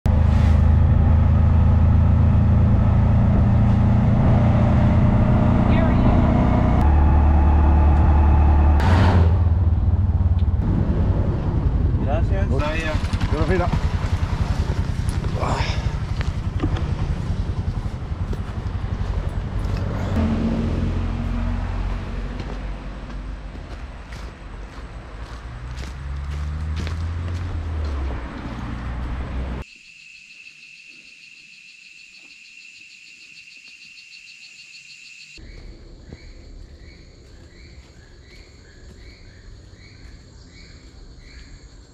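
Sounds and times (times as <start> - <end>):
insects buzzing and trilling: 29.6 - 41.9.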